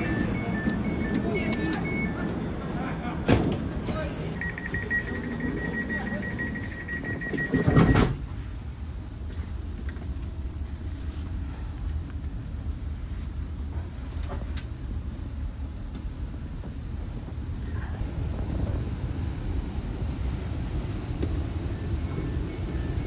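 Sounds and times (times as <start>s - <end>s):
train low rumble: 0.0s - 23.0s
pulsing high beep: 4.4s - 8.1s.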